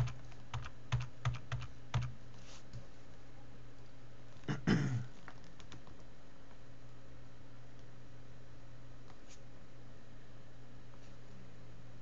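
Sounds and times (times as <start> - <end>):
computer keys and mouse clicking: 0.0 - 2.1, 5.1 - 6.1
person clearing throat: 4.4 - 5.1.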